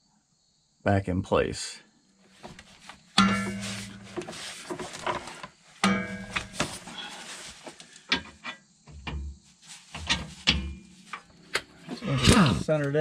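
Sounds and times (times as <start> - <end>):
dull thumps: 2.4 - 11.3
metal clanks and taps: 3.2 - 7.2, 7.8 - 12.4.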